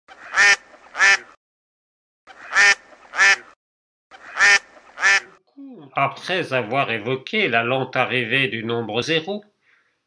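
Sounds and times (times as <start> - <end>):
duck quacking: 0.1 - 1.4, 2.3 - 5.4.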